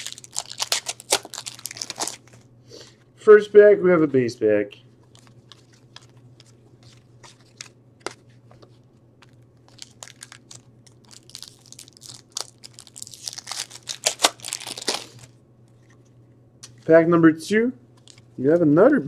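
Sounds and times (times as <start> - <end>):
foil wrapper crinkling and tearing: 0.0 - 2.4, 9.2 - 15.3.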